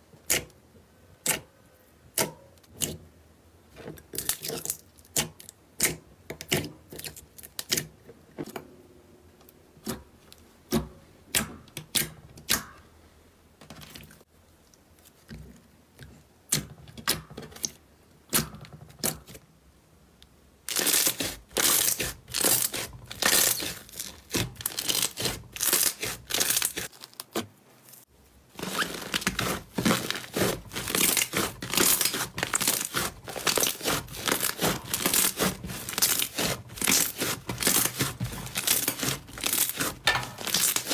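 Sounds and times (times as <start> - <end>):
slime crackling and tearing: 20.7 - 27.5, 28.5 - 40.9.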